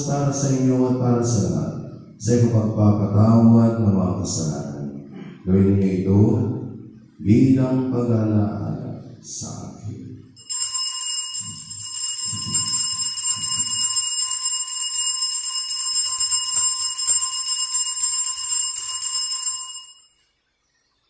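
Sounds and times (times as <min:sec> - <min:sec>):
altar bells ringing: 0:10.4 - 0:20.2.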